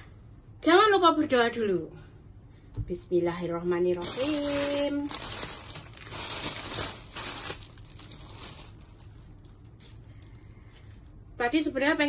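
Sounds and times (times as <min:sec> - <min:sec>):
plastic bag rustling: 0:04.0 - 0:11.2.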